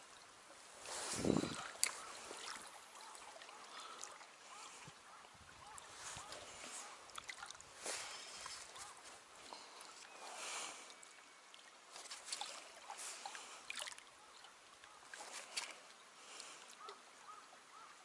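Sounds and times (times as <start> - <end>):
waves lapping against concrete: 0.0 - 18.0.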